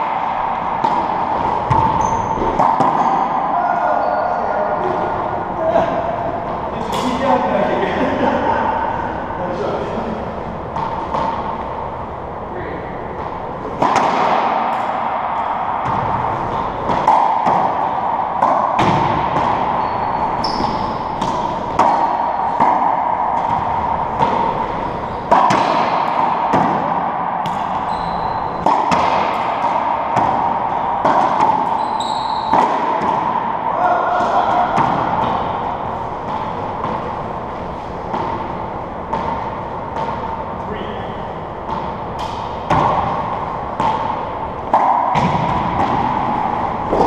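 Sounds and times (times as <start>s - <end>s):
ball cracking off racquets and walls: 0.0s - 3.5s, 13.2s - 40.4s, 41.6s - 47.0s
shoes squeaking on hardwood floor: 1.7s - 2.6s, 19.8s - 21.2s, 27.8s - 28.6s, 31.8s - 32.5s.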